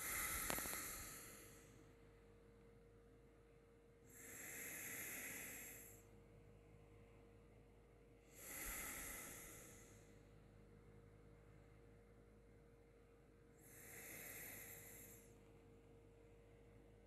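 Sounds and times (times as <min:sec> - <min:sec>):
faint slow breaths: 0:00.0 - 0:02.1, 0:04.0 - 0:10.7, 0:13.5 - 0:17.0.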